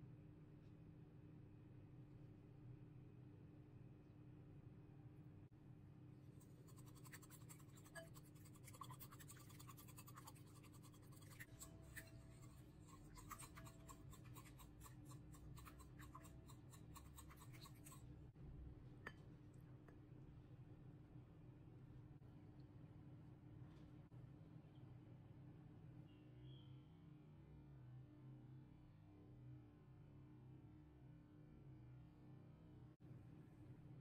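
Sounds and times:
whisk clicking against bowl: 0:06.6 - 0:18.0.

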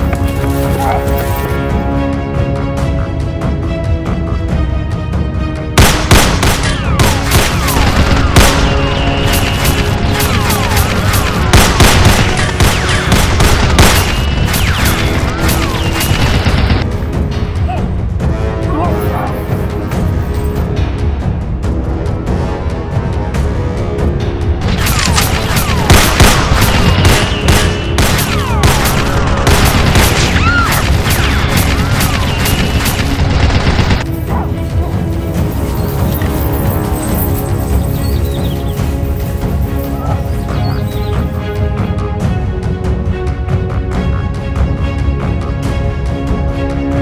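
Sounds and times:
background music: 0:00.0 - 0:47.0
gunshots: 0:05.8 - 0:16.8, 0:24.6 - 0:34.1
rapid gunfire sound effects: 0:05.8 - 0:16.8, 0:24.7 - 0:34.0.

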